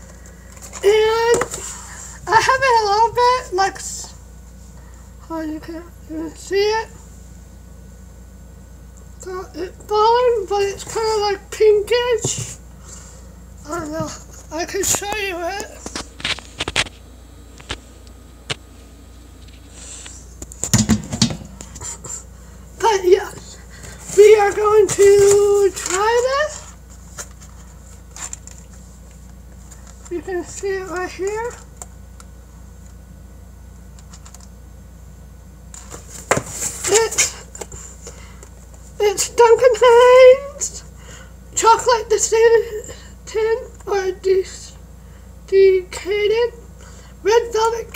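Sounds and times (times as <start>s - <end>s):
steady low hum: 0.0s - 47.9s
phone handling bumps: 20.5s - 21.7s
cardboard packaging rustling: 23.3s - 31.6s, 35.8s - 37.8s.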